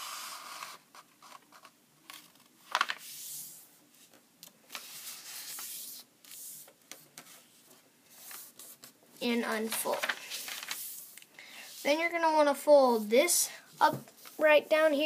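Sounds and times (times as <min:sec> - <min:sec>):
paper rustling and crackling: 0:08.2 - 0:11.2.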